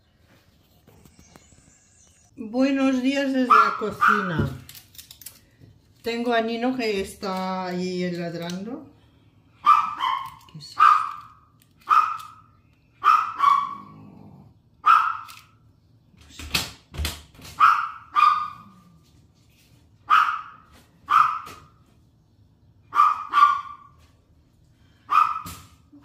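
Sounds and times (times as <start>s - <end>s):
small dog barking: 3.5s - 4.3s, 9.6s - 11.3s, 11.9s - 12.4s, 13.0s - 14.0s, 14.8s - 15.4s, 17.6s - 18.8s, 20.1s - 21.6s, 22.9s - 24.0s, 25.1s - 25.6s.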